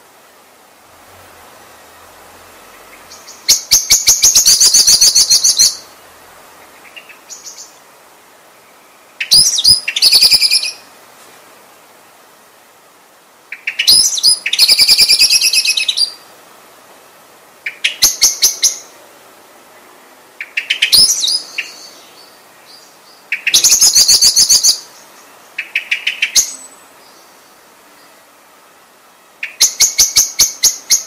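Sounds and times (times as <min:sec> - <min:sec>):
blackbird calling: 0:02.6 - 0:05.9, 0:06.6 - 0:07.8, 0:09.1 - 0:10.9, 0:13.5 - 0:16.2, 0:17.6 - 0:19.0, 0:20.4 - 0:28.2, 0:29.4 - 0:31.0.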